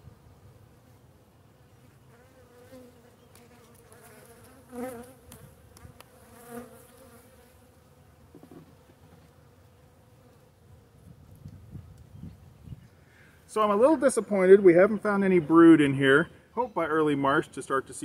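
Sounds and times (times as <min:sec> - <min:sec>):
bees buzzing: 0:01.9 - 0:10.8.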